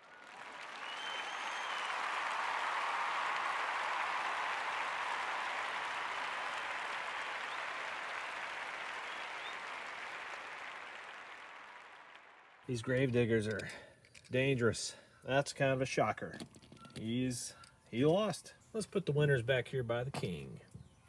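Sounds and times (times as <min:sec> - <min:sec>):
crowd applause: 0:00.0 - 0:12.7.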